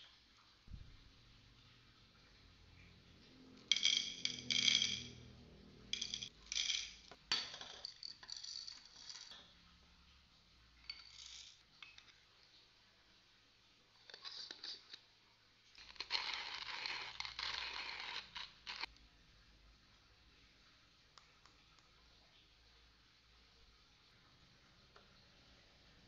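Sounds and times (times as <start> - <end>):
coffee beans rattling into cup: 3.7 - 5.2, 5.9 - 9.4, 10.9 - 11.6.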